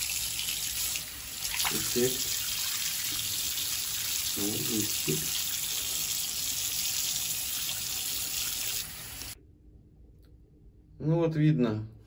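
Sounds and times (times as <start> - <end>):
water running from a bath tap: 0.0 - 9.4.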